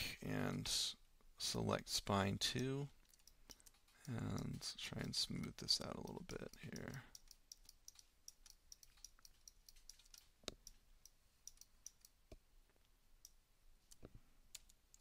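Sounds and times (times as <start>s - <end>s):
mouse and keyboard clicking: 3.0s - 5.2s, 5.8s - 12.2s, 13.2s - 15.0s.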